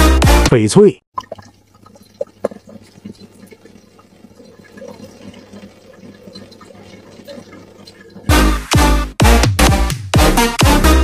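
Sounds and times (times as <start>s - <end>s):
tap water trickling into sink: 1.2s - 8.4s.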